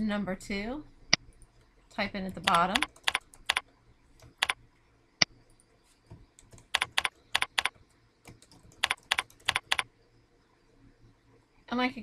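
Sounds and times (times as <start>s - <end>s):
typing on computer keyboard: 2.2s - 3.6s, 4.2s - 4.6s, 6.3s - 9.9s.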